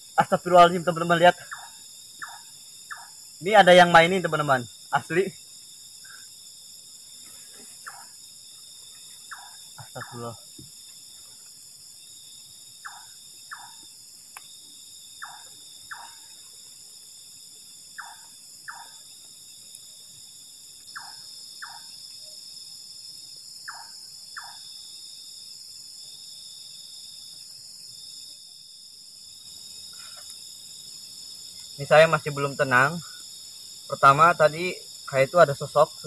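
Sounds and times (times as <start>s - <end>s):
crickets trilling: 0.0s - 36.0s.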